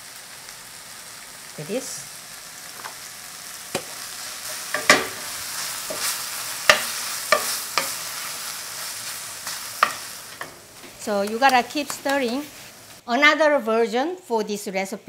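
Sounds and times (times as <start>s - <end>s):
food sizzling in a frying pan: 0.0s - 13.1s
wooden spoon knocking pan: 4.7s - 5.3s, 6.7s - 8.0s.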